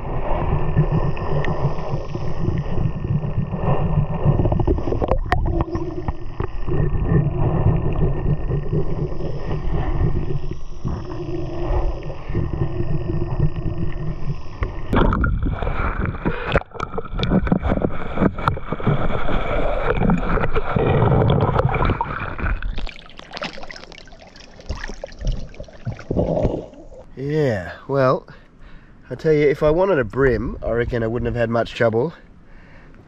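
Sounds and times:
water sloshing and gurgling: 0.0 - 27.4
splashes and sharp knocks: 14.9 - 27.1.

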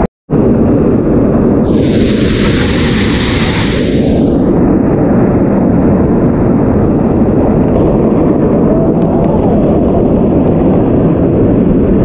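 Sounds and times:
waterfall rushing: 1.6 - 4.6.

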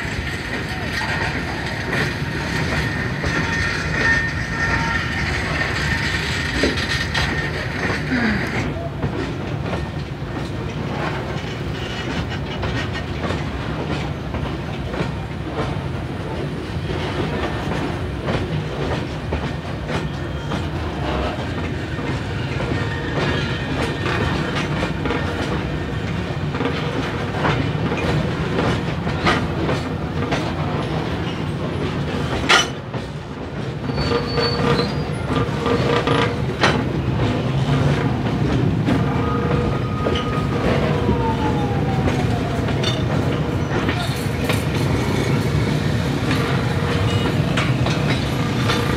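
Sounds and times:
train wheels clattering over rail joints: 0.0 - 48.9
faint wheel squeal: 33.8 - 35.8.

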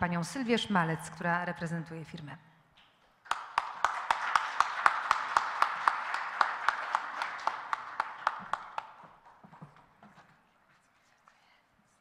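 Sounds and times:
nearby person clapping: 3.2 - 9.9
audience applause: 3.3 - 9.6.

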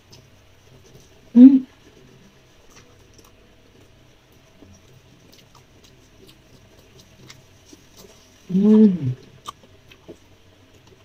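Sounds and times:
person chewing: 2.6 - 11.0.

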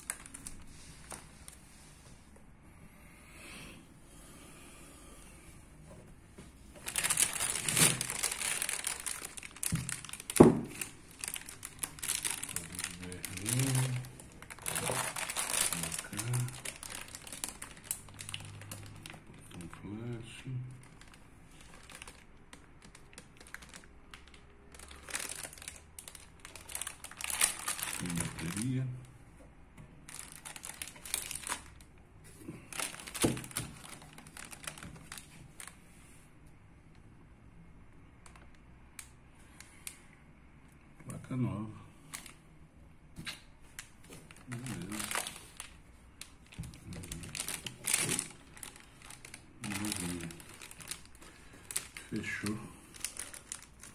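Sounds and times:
plastic bag crinkling: 0.0 - 1.6, 6.8 - 29.0, 30.0 - 35.8, 42.1 - 42.4, 43.2 - 53.9.

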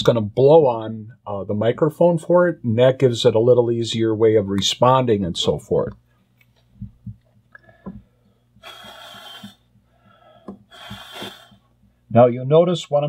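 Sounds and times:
breath puffs into microphone: 7.8 - 11.7.

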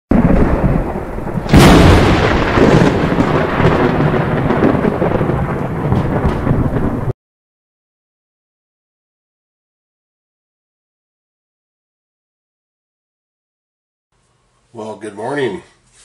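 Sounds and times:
rain: 0.1 - 7.2
rumbling thunder: 0.1 - 7.2
sharp thunderclap: 0.1 - 7.2.

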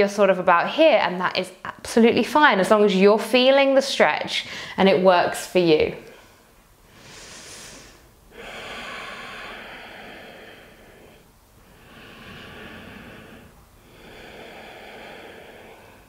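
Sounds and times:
woman breathing slowly: 4.4 - 4.8, 6.0 - 16.0.

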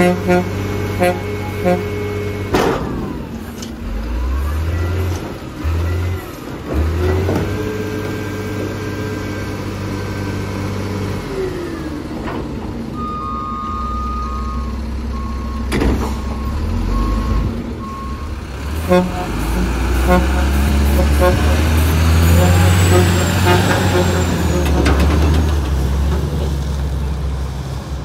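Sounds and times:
diesel truck engine revving: 0.0 - 28.0
dumpster clanking down: 2.4 - 5.8, 15.2 - 17.0, 22.7 - 26.6
reversing beeper: 4.0 - 6.4, 13.0 - 24.7.

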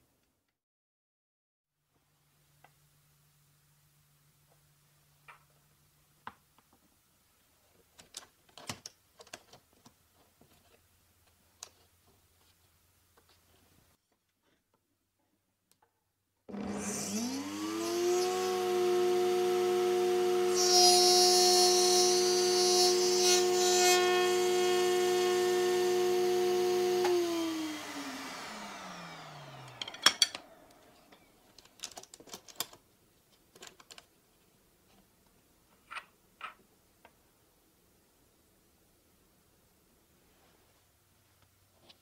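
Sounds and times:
electric planer running: 16.5 - 31.3.

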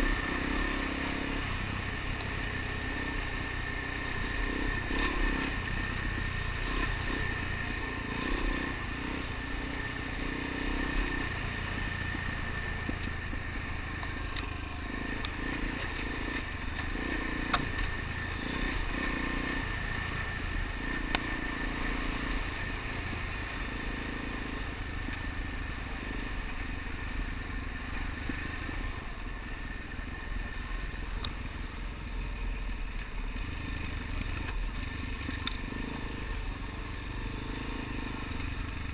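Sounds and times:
motorcycle engine running: 0.0 - 38.9
sharp ticks: 15.1 - 18.0, 21.0 - 21.4.

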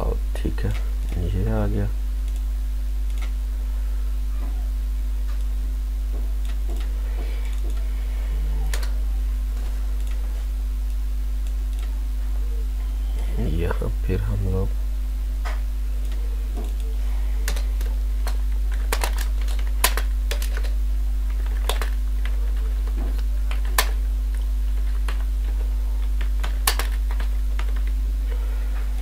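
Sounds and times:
low electrical hum: 0.0 - 29.0
keyboard typing: 15.5 - 28.0.

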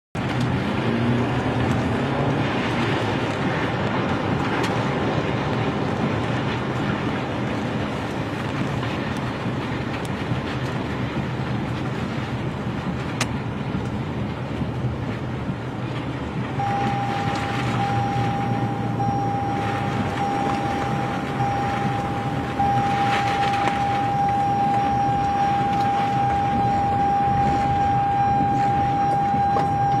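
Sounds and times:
low hum: 0.2 - 30.0
wind and rain rushing: 0.2 - 30.0
steady high-pitched tone: 16.6 - 30.0.

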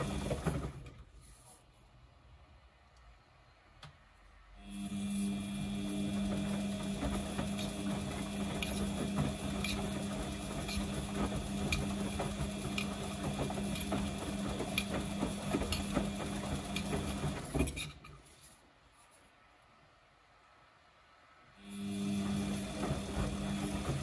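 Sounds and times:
washing machine motor hum: 0.0 - 1.1, 3.8 - 18.3, 21.6 - 24.0.

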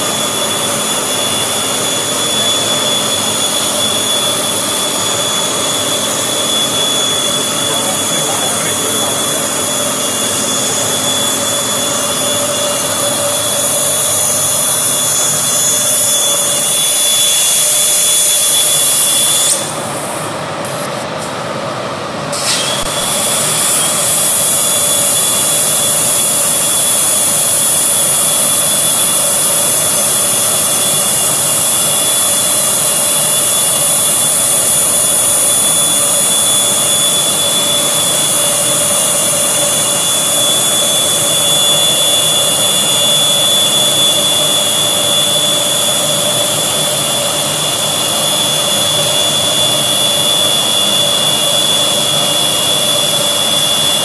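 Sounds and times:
plasma torch hissing: 22.3 - 25.8.

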